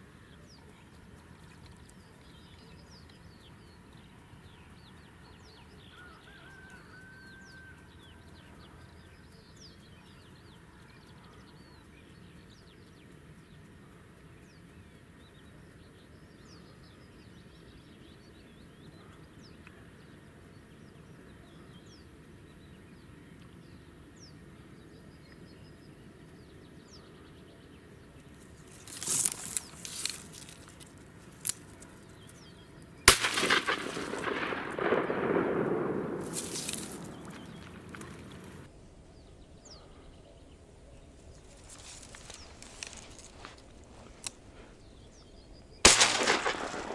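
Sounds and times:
small birds chirping: 0:00.0 - 0:46.9
shotgun shot: 0:33.1 - 0:38.2, 0:45.8 - 0:46.9.

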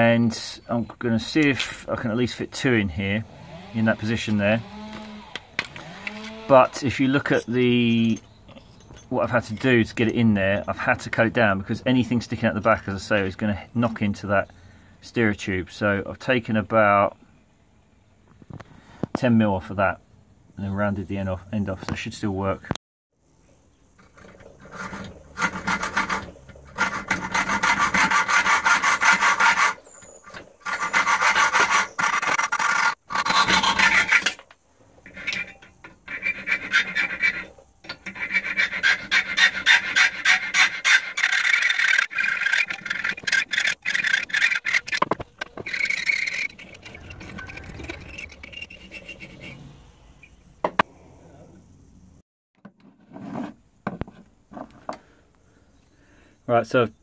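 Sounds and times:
metal file scraping steel: 0:03.8 - 0:08.2, 0:24.0 - 0:50.9.

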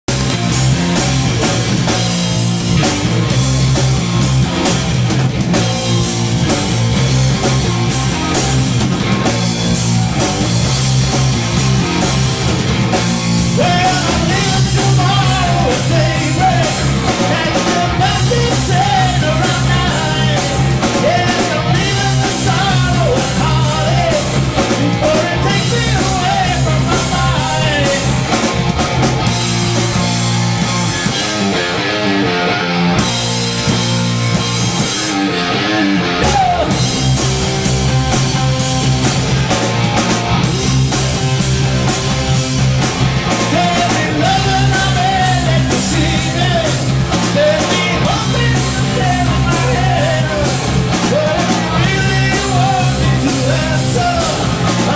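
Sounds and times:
drums: 0:00.0 - 0:54.9
electric guitar: 0:00.0 - 0:54.9
man singing: 0:13.5 - 0:28.4, 0:35.6 - 0:36.9, 0:43.4 - 0:54.9.

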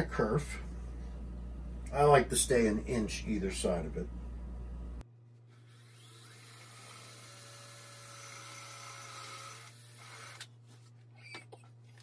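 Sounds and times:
cordless drill whirring: 0:05.4 - 0:10.5.

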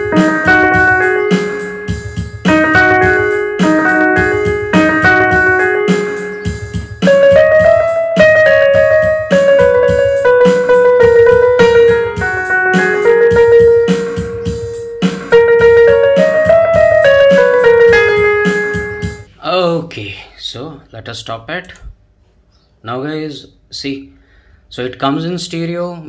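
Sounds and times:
electronic keyboard slow melody: 0:00.0 - 0:19.3.

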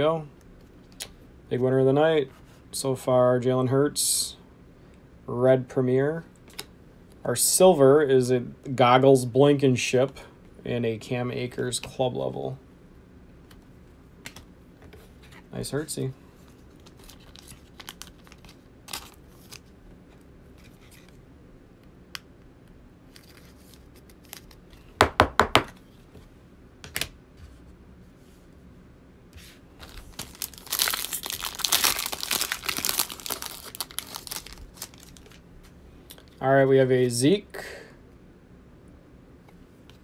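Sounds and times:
foil pack crinkling and tearing: 0:16.7 - 0:19.7, 0:29.8 - 0:35.4.

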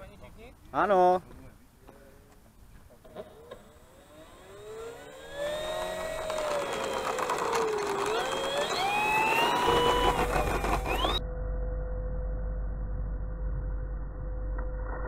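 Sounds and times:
low hum: 0:02.5 - 0:15.0
model plane motor whine: 0:03.2 - 0:11.2.

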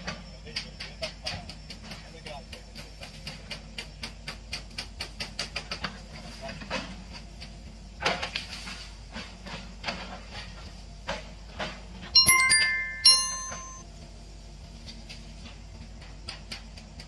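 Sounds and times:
bright metallic rings: 0:12.2 - 0:13.8.

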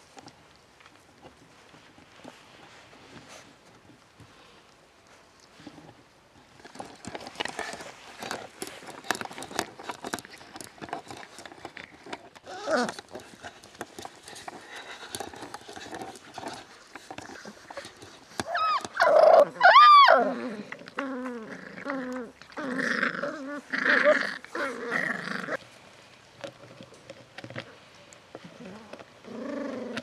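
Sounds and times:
puppies growling: 0:06.6 - 0:25.6, 0:28.4 - 0:30.0
puppies yelping: 0:18.4 - 0:20.4.

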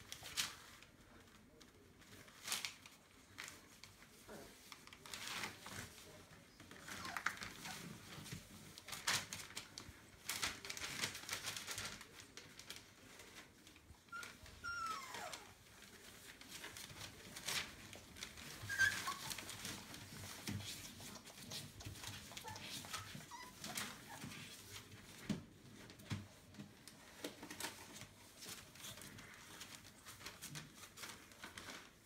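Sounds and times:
newspaper rustling and crinkling: 0:00.0 - 0:32.0
puppy squeaks: 0:14.1 - 0:15.6, 0:18.5 - 0:19.6, 0:22.3 - 0:24.3.

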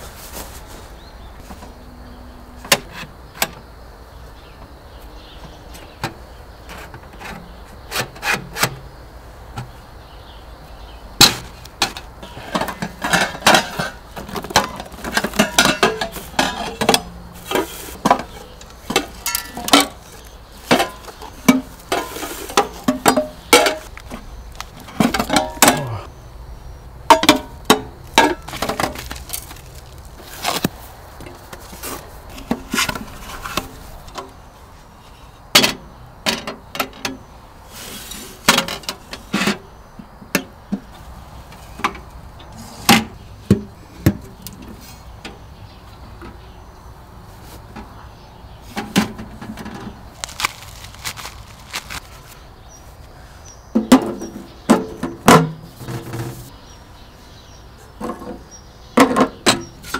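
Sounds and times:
scraping and rustling: 0:00.0 - 0:01.8, 0:11.3 - 0:26.1, 0:28.1 - 0:35.2, 0:48.6 - 0:53.1, 0:53.8 - 0:56.6.

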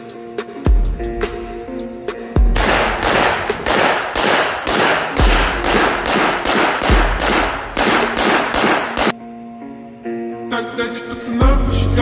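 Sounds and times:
music: 0:00.0 - 0:12.0
rapid rifle fire: 0:02.6 - 0:09.1
shots striking steel target: 0:02.6 - 0:09.2.

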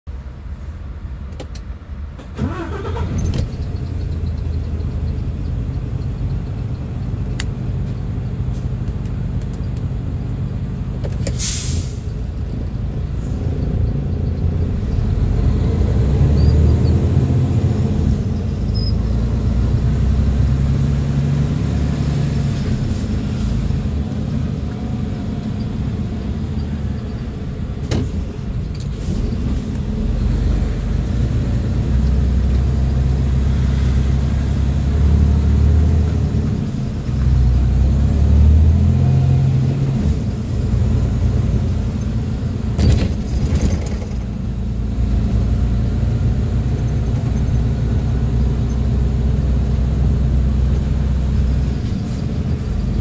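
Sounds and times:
air hiss: 0:11.3 - 0:12.2.

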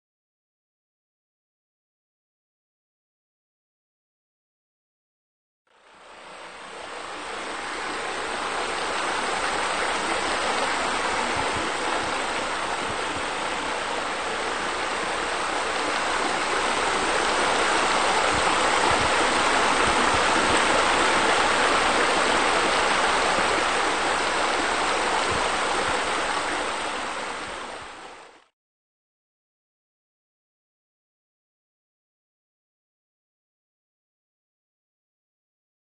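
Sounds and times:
rushing water: 0:05.8 - 0:28.5.

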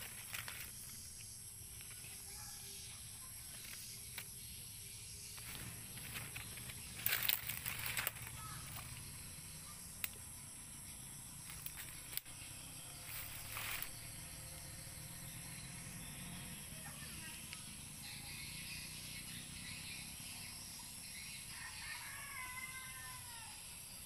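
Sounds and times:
rustling and handling noises: 0:00.0 - 0:02.3, 0:05.4 - 0:09.0, 0:13.1 - 0:14.0.

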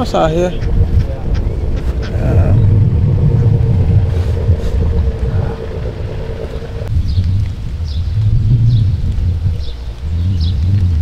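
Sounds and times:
faint hum: 0:00.0 - 0:06.9
wind buffeting microphone: 0:00.0 - 0:11.0.

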